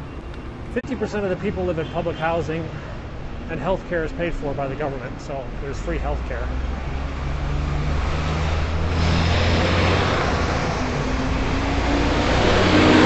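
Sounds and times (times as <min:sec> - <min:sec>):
steady low traffic hum: 0:00.0 - 0:13.0
vehicle engine approaching: 0:03.5 - 0:13.0
bus driving past: 0:05.8 - 0:13.0.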